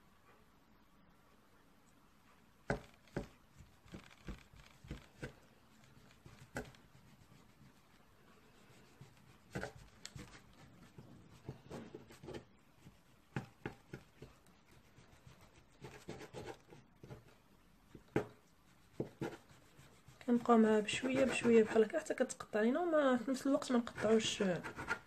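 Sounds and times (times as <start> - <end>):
knife cutting through pastry: 8.7 - 17.3.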